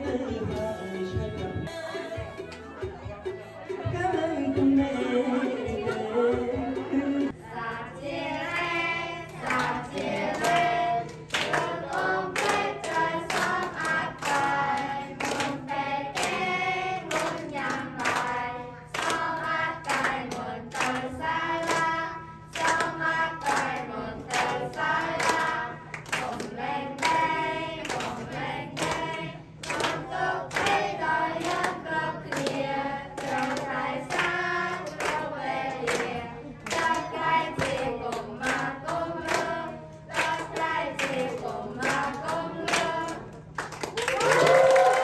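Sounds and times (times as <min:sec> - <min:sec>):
hand claps: 0:09.3 - 0:45.0.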